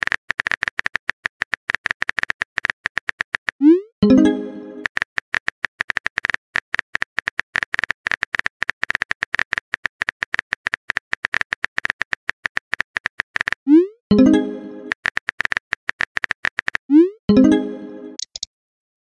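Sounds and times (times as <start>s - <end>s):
keyboard tap clicks: 18.2s - 18.5s.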